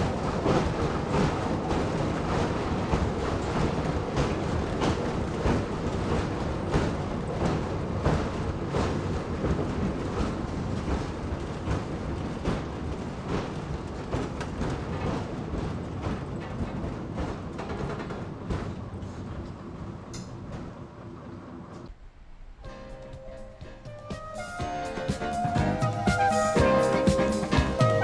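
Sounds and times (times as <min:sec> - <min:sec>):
wheels clicking over rail joints: 0:00.0 - 0:21.9
railbus engine and running noise: 0:00.0 - 0:28.0.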